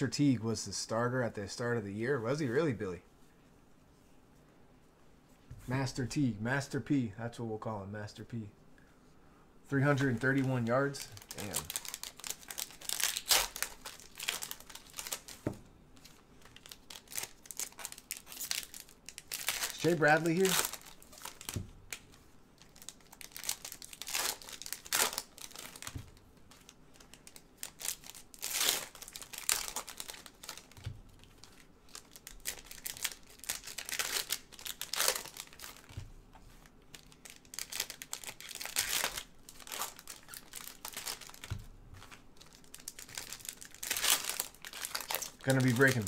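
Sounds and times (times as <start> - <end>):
foil wrappers crinkling: 9.8 - 15.4, 16.0 - 36.0, 36.6 - 46.0.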